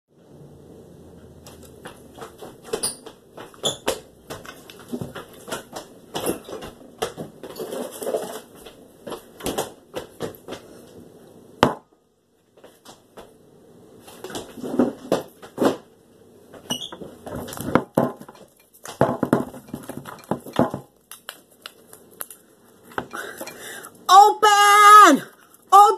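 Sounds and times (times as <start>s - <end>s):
cardboard tube knocking and rustling: 17.3s - 20.9s.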